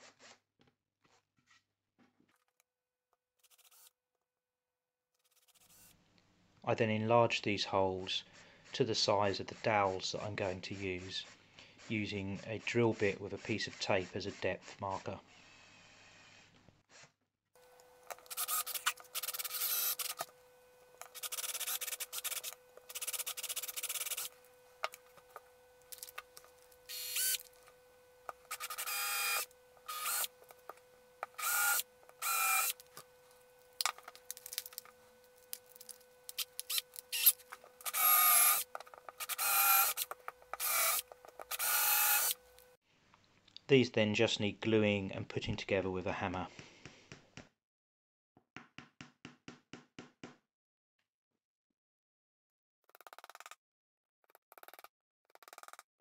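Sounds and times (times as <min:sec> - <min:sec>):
power drill boring into board: 0:18.2 - 0:20.4, 0:21.1 - 0:24.4, 0:26.8 - 0:27.6, 0:28.3 - 0:30.5, 0:31.2 - 0:33.0, 0:36.3 - 0:42.5.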